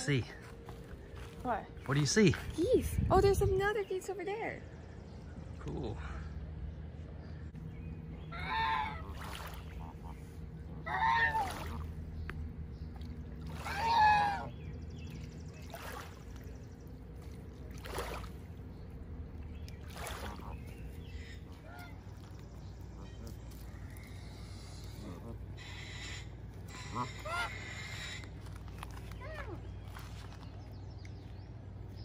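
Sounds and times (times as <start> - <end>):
geese honking: 8.2 - 12.0, 13.4 - 14.9, 20.1 - 29.4.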